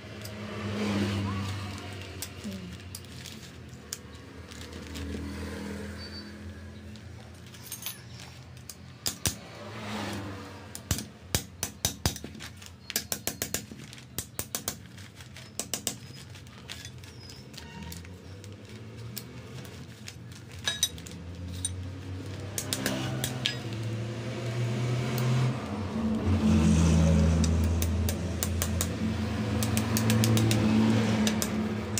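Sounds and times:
metal tool clicks and taps: 0:08.6 - 0:09.4, 0:10.7 - 0:14.8, 0:22.5 - 0:23.9, 0:27.4 - 0:29.0, 0:29.6 - 0:31.7.

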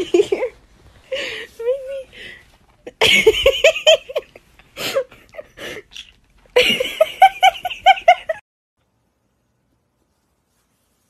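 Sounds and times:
person laughing: 0:06.6 - 0:08.4.

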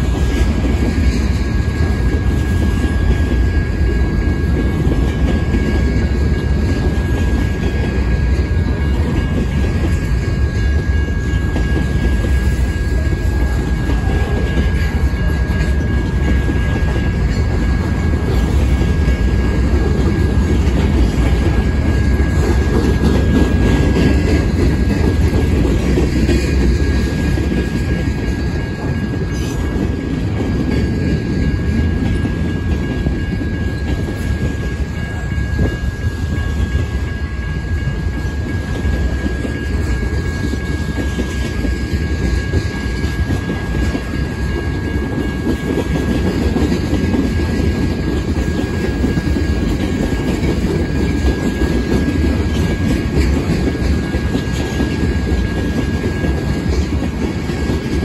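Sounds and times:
high-pitched ring: 0:00.0 - 0:58.0
steel wheels rumbling on rail: 0:00.0 - 0:58.0.

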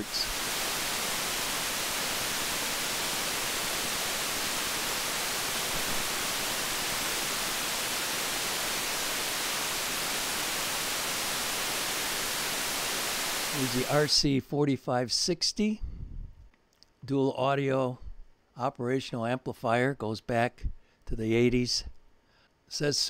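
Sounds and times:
steady electronic hiss: 0:00.0 - 0:15.8, 0:22.6 - 0:23.0.

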